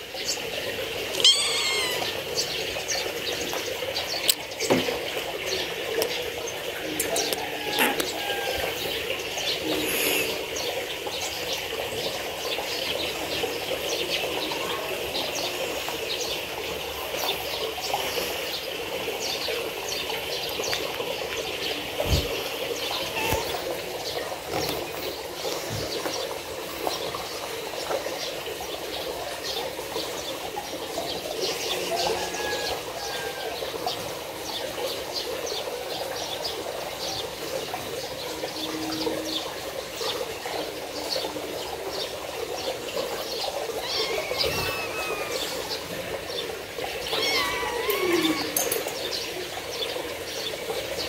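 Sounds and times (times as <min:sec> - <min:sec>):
kittens meowing: 0:01.1 - 0:02.3, 0:23.1 - 0:23.7, 0:43.8 - 0:45.8, 0:47.0 - 0:48.6.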